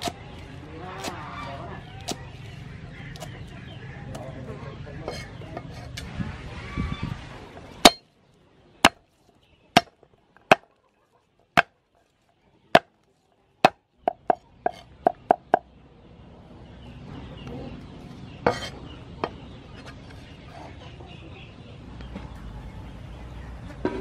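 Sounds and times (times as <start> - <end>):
cleaver chopping on wooden block: 7.8 - 8.0, 9.8 - 10.7.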